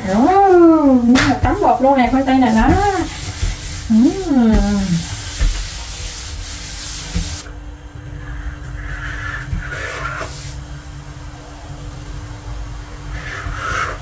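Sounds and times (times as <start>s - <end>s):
faint steady hum: 0.0s - 14.0s
hands rubbing flour on dough: 1.4s - 7.5s.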